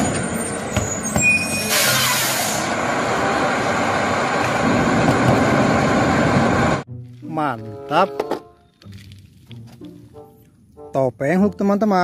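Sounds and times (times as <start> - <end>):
hissing air burst: 1.7 - 2.8.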